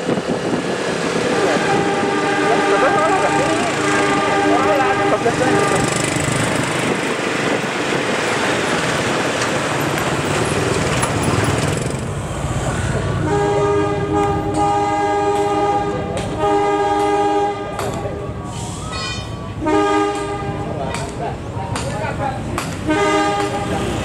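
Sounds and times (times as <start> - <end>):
wind and road rushing: 0.0 - 14.8
locomotive horn blasts: 1.3 - 6.2, 13.2 - 18.3, 19.0 - 20.8, 22.8 - 24.0.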